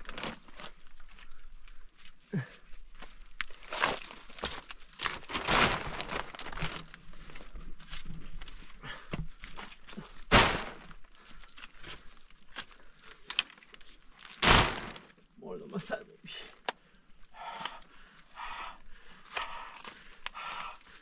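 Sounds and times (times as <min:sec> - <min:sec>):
plastic sheet crinkling: 0:00.0 - 0:01.3, 0:03.4 - 0:07.5, 0:10.2 - 0:12.1, 0:12.8 - 0:15.1
footsteps: 0:10.3 - 0:11.1, 0:14.4 - 0:15.1.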